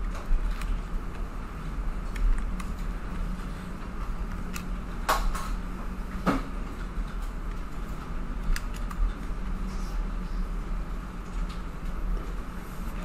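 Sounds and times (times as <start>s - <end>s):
steady electrical hum: 0.0s - 13.0s
keyboard key presses: 8.4s - 9.1s.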